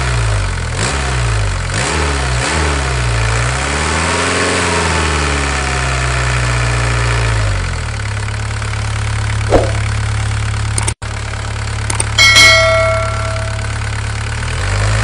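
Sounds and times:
engine slowing and idling: 7.6 - 15.0
short knock: 9.5 - 9.9.

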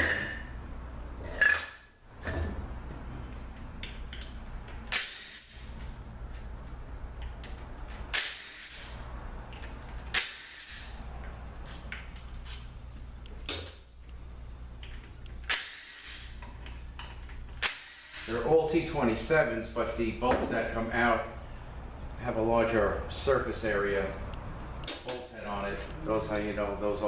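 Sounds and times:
steady low hum: 0.0 - 27.0.

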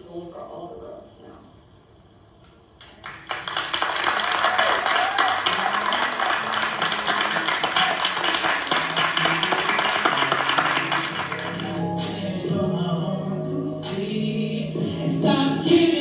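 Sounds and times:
audience applause: 2.8 - 11.8
music: 5.5 - 16.0.

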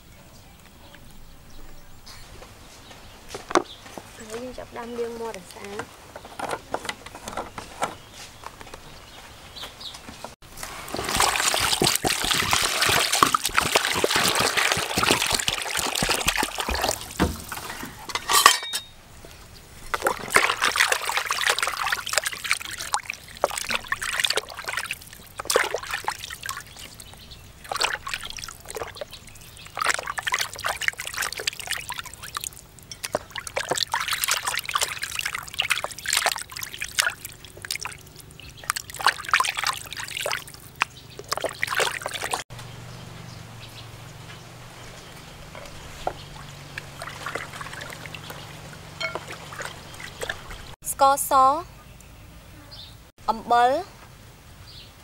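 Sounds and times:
water sloshing in plastic basin: 10.5 - 18.6, 19.7 - 42.4, 45.4 - 50.8.

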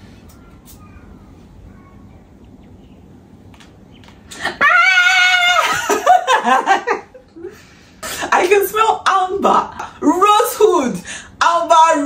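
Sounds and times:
woman squealing: 4.4 - 6.2
woman laughing: 5.4 - 7.6.

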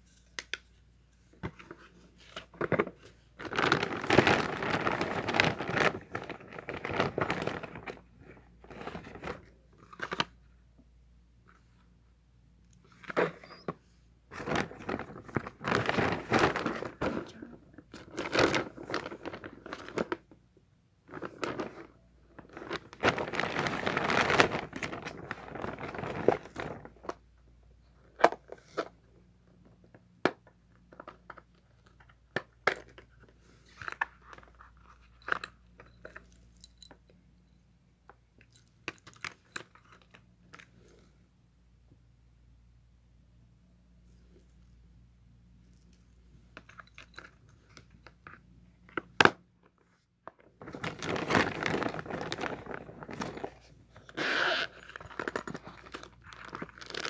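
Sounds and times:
packaging tearing and crinkling: 3.4 - 7.9, 22.4 - 26.9, 50.6 - 57.0.

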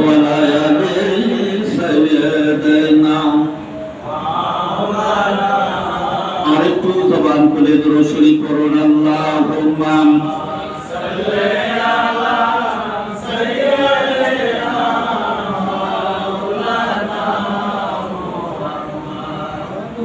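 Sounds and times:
man chanting into a microphone: 0.0 - 20.0
men chanting together: 4.0 - 6.8, 9.4 - 20.0.

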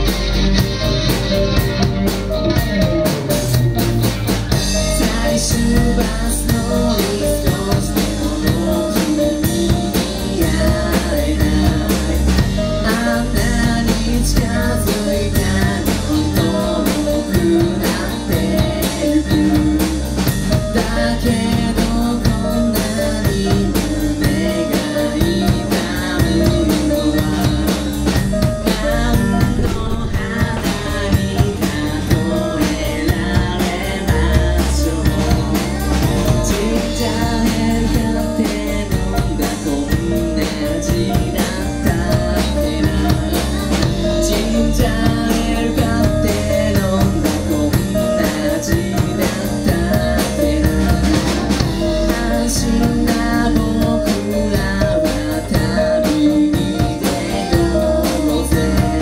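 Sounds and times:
drum kit: 0.0 - 59.0
electric guitars: 0.0 - 59.0
keyboard: 0.0 - 59.0
person singing: 0.0 - 59.0.

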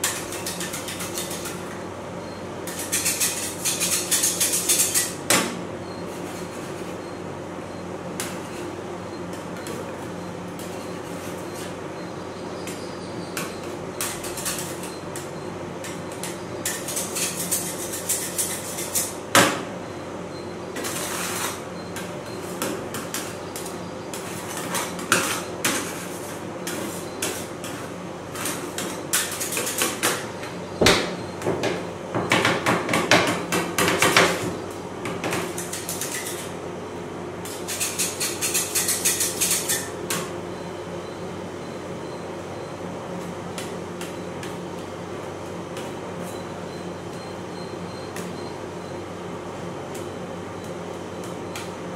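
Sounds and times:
metal spatulas scraping and tapping: 0.0 - 1.6, 2.7 - 5.2, 13.4 - 19.2, 22.6 - 30.2, 35.3 - 36.5, 37.5 - 39.9.

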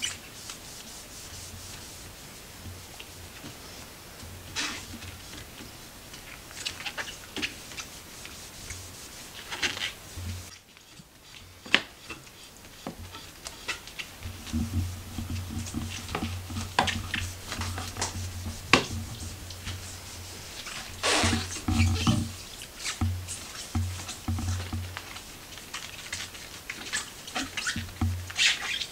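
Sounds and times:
cloth rubbing on wooden spindles: 0.0 - 28.9
sharp clicks and knocks: 12.9 - 25.2
low steady hum: 14.2 - 24.9.

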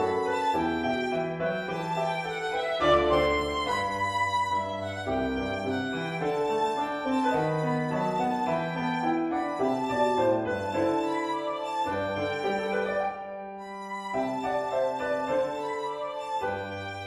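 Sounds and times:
piano accompaniment: 0.0 - 17.0
violin melody: 0.0 - 17.0.

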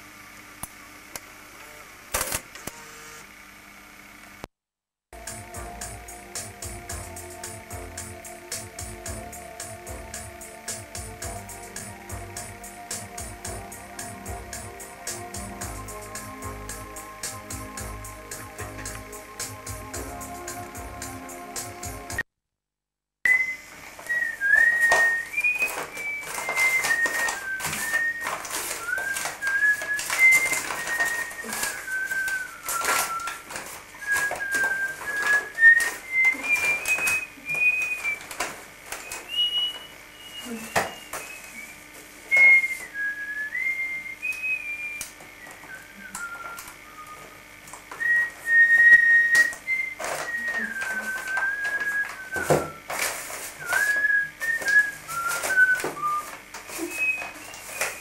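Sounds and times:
person whistling a slow tune: 5.2 - 22.2, 23.3 - 58.0
wrapping paper rustling: 23.9 - 43.6, 45.5 - 58.0.

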